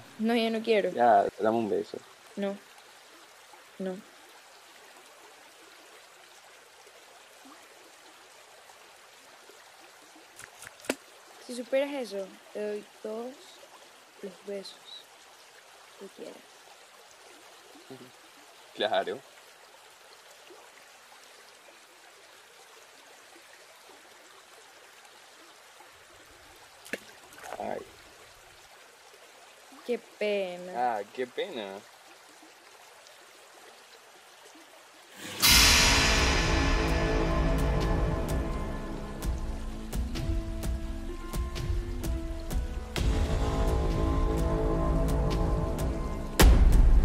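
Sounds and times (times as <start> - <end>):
shallow stream flowing over rocks: 0.0 - 35.4.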